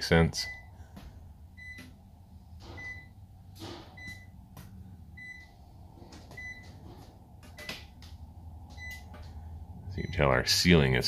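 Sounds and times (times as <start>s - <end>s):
low steady hum: 0.0s - 11.0s
electronic alarm beeping: 0.4s - 0.8s, 1.6s - 2.0s, 2.7s - 3.3s, 4.0s - 4.4s, 5.1s - 5.6s, 6.3s - 6.8s, 8.7s - 9.1s.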